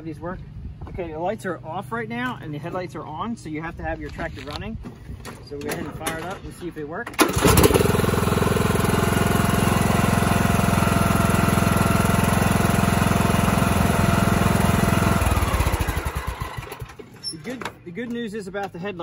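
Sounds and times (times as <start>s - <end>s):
lawn tractor engine running: 7.1s - 17.8s.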